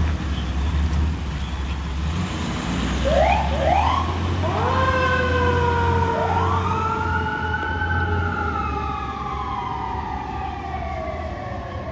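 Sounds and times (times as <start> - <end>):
truck engine rumble: 0.0 - 11.9
fire engine siren wailing: 3.0 - 11.9.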